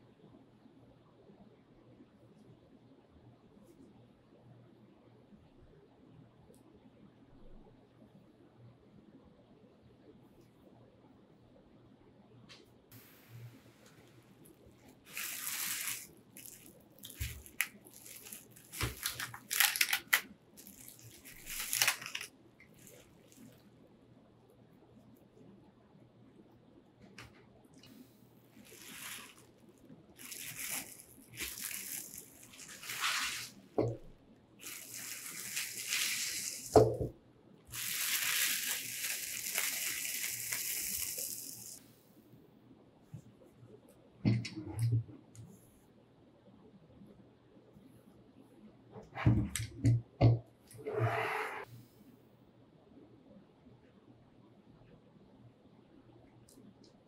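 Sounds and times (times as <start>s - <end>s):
bubble wrap crinkling: 13.8s - 23.7s, 28.5s - 37.0s, 37.7s - 41.8s.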